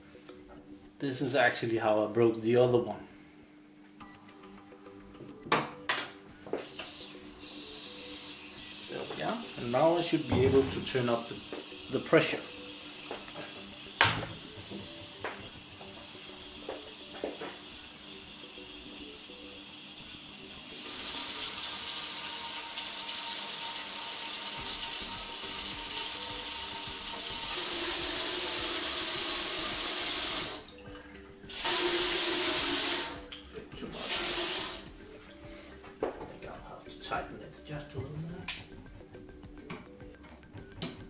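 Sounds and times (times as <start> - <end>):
tap running into steel sink: 14.0 - 15.5.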